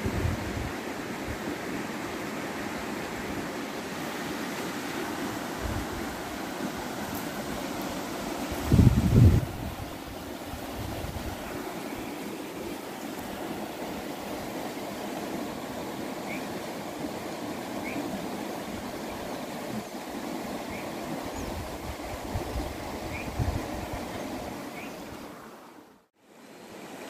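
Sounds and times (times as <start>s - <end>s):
outdoor background noise: 0.0s - 27.0s.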